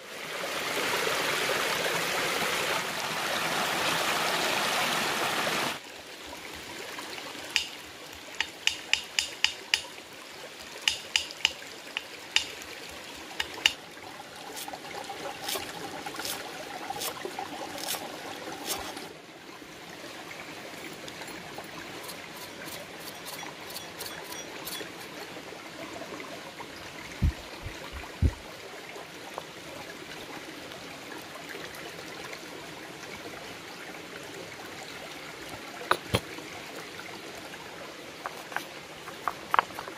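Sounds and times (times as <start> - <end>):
stream trickling: 0.0 - 39.9
sharp knife taps: 7.6 - 7.8, 8.4 - 9.9, 10.9 - 12.5, 13.4 - 13.8.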